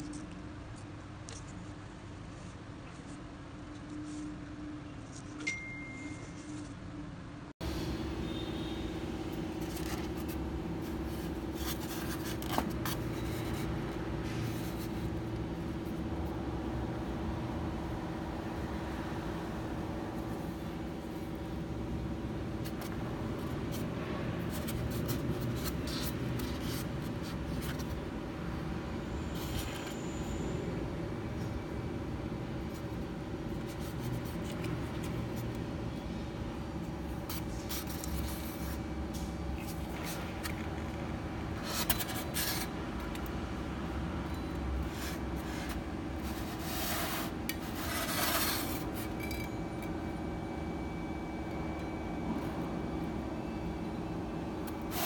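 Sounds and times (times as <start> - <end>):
weights rubbing on styrofoam: 44.8 - 49.0.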